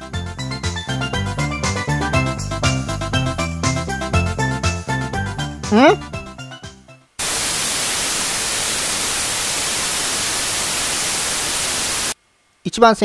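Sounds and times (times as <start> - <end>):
background music: 0.0 - 7.1
television static hiss: 7.2 - 13.0.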